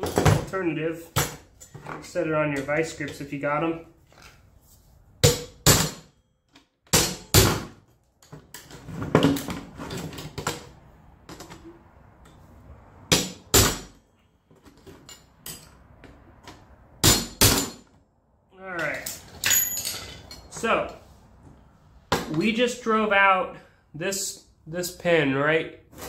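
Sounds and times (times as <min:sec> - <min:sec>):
hammer striking steel punch: 0:05.2 - 0:06.1, 0:06.9 - 0:07.7, 0:17.0 - 0:17.8.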